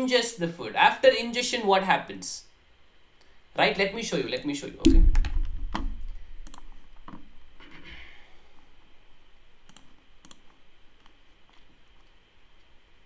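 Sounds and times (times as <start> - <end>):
mouse and keyboard clicks: 9.7 - 12.2.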